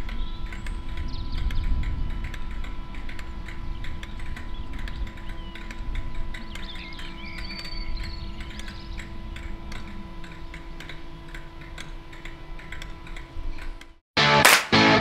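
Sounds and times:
birds chirping: 3.5 - 12.6.

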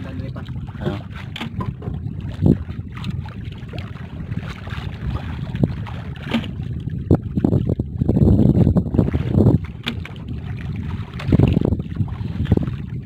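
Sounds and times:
water lapping against boat: 0.0 - 13.0
wind buffeting microphone: 0.0 - 13.0
sharp knocks: 0.8 - 2.0.

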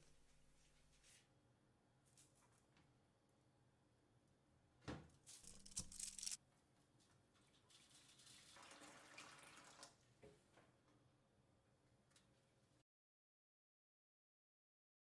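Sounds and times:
water pouring into tray: 7.8 - 10.0.

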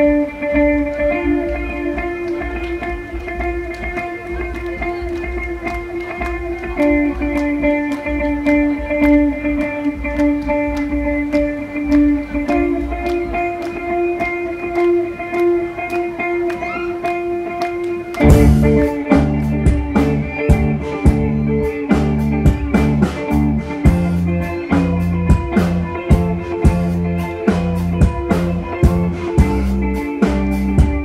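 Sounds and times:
electric guitar picking notes: 0.0 - 31.0
rock band playing: 0.0 - 31.0.

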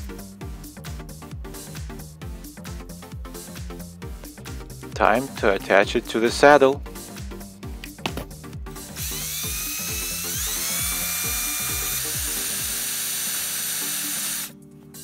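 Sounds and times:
background music: 0.0 - 15.0
cordless drill whining: 8.9 - 15.0.

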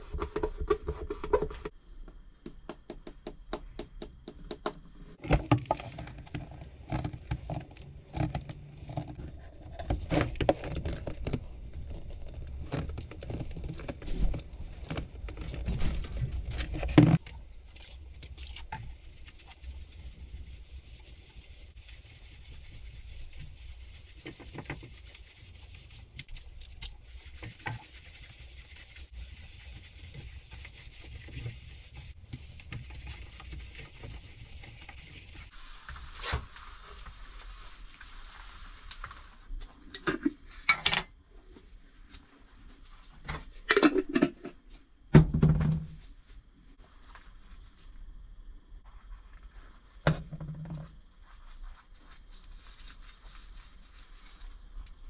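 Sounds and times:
cloth wiping polish off wood: 18.8 - 26.2, 27.0 - 39.3.

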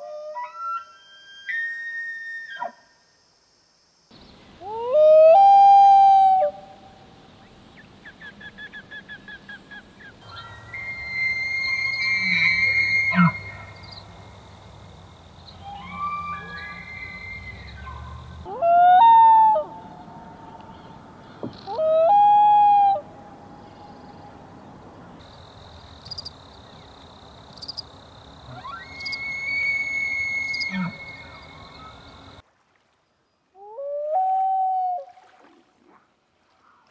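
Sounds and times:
elk bugling: 10.3 - 14.1, 28.5 - 32.4
loon wailing: 10.4 - 13.8, 15.6 - 20.5, 28.5 - 32.0
loon wail echo: 15.6 - 20.7.

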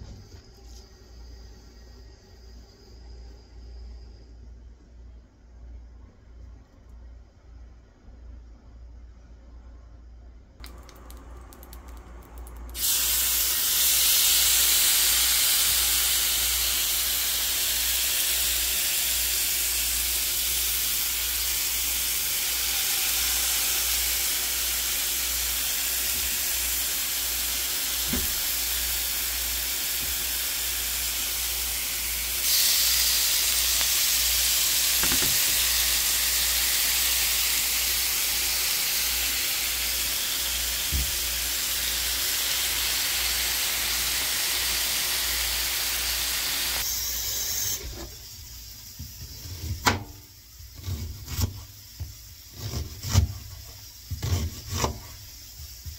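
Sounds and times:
steak sizzling on grill pan: 12.8 - 46.8.

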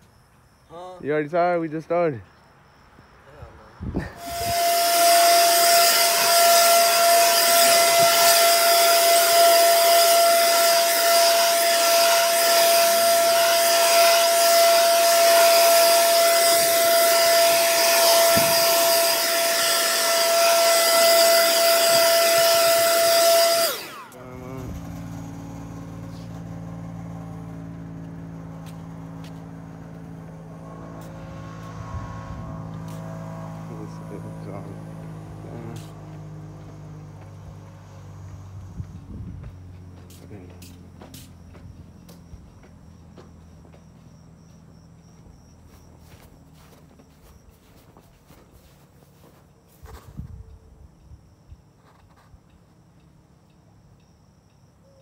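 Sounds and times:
leaf blower running: 4.0 - 43.8, 45.2 - 50.2
low engine hum: 23.8 - 51.4.

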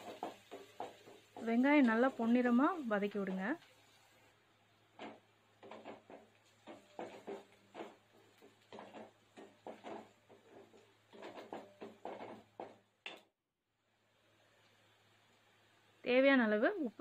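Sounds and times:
wooden spatula scraping metal pan: 5.0 - 12.8.

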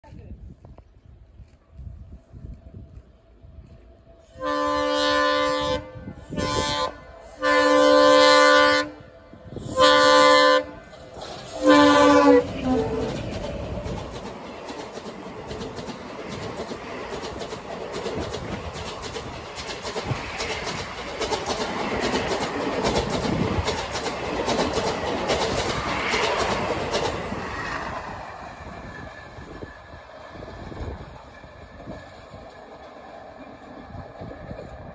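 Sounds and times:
train rumble: 0.0 - 34.9
locomotive horn blasts: 4.2 - 10.8, 11.6 - 13.0
train wheels clicking over rail joints: 10.8 - 34.9.

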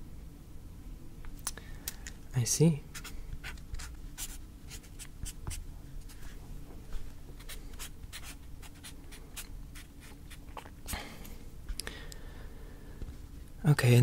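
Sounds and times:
pen scratching on paper: 2.9 - 6.3, 7.4 - 10.5.

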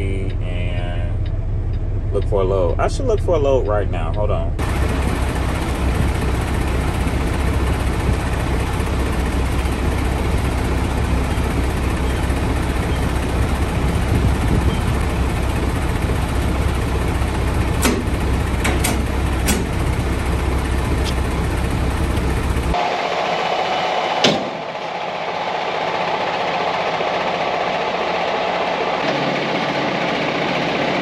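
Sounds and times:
truck engine rumbling: 0.0 - 31.0
sharp knocks: 17.8 - 19.8, 24.2 - 24.7.

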